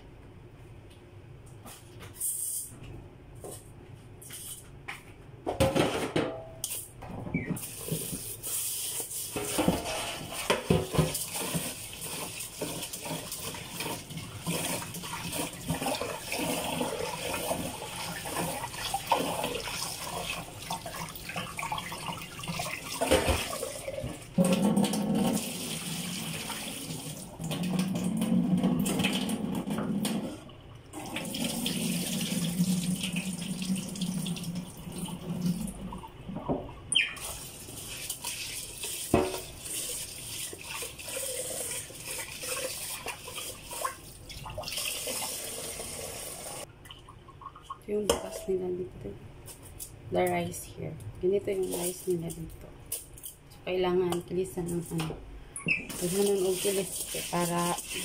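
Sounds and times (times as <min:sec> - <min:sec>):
pot clattering in sink: 0:05.5 - 0:08.2, 0:09.3 - 0:11.8, 0:21.3 - 0:25.4, 0:39.0 - 0:39.6
tap water running into metal pot: 0:09.4 - 0:30.3, 0:31.0 - 0:35.6, 0:37.2 - 0:46.7, 0:55.9 - 0:58.0.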